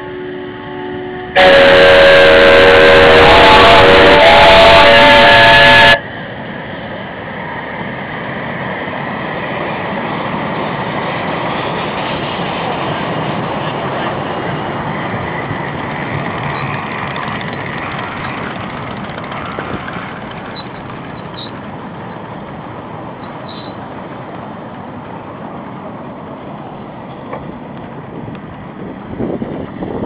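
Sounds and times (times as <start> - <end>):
steam whistle blowing: 0.0 - 6.0
rush of steam: 0.0 - 30.0
steam locomotive running: 0.0 - 30.0.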